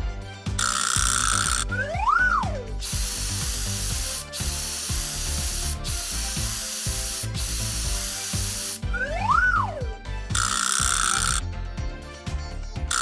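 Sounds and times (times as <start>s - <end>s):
soft background music: 0.0s - 13.0s
whistle rising and falling: 1.5s - 2.8s, 8.8s - 9.9s
cartoon spray hissing: 2.5s - 9.8s.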